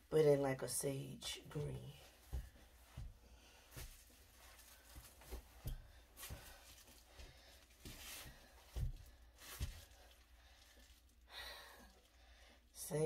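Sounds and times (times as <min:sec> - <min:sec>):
footsteps on wooden floor: 0:01.6 - 0:10.0
faint rustling: 0:02.0 - 0:11.3.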